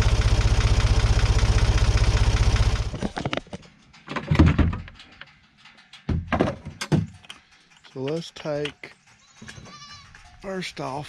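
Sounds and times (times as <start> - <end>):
utility vehicle engine throbbing: 0.0 - 4.0.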